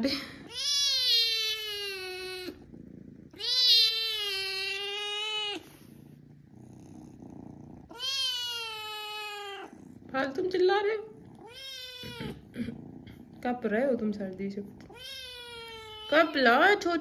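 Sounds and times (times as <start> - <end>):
kitten meowing: 0.4 - 2.6, 3.4 - 5.6, 7.9 - 9.7, 11.4 - 12.5, 14.8 - 16.4.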